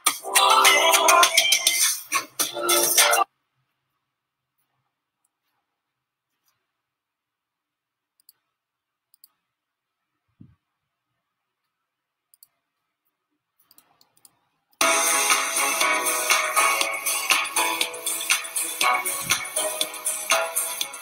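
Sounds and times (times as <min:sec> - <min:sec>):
computer clicks: 0:13.6 - 0:14.8
loud cartoon music: 0:14.8 - 0:21.0.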